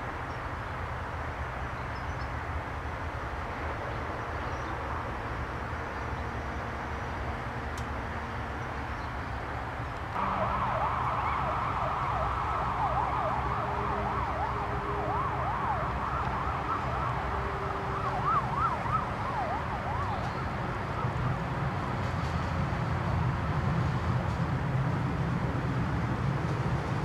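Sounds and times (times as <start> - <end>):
siren wailing: 10.2 - 21.4.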